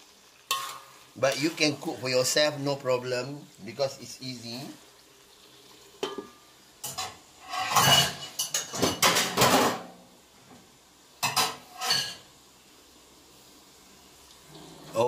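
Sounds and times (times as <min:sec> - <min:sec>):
metal lid clattering on wok: 0:00.5 - 0:00.9, 0:06.0 - 0:09.9.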